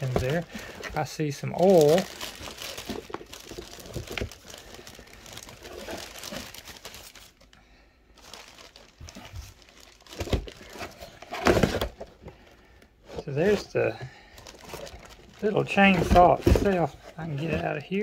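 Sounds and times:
plastic bag crinkling: 0:00.0 - 0:07.6, 0:08.2 - 0:12.0, 0:14.4 - 0:18.0.

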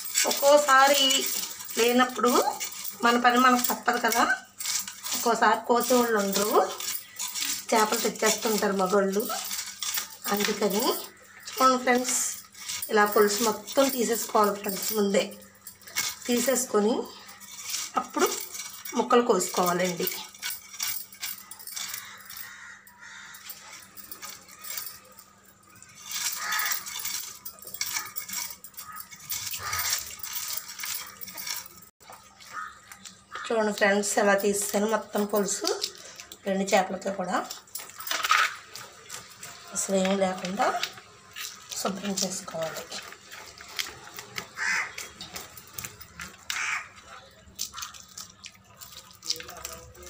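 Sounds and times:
crow cawing: 0:22.0 - 0:23.5, 0:32.4 - 0:33.5, 0:44.6 - 0:45.0, 0:46.5 - 0:47.0
fish scales being scraped: 0:25.8 - 0:33.4.

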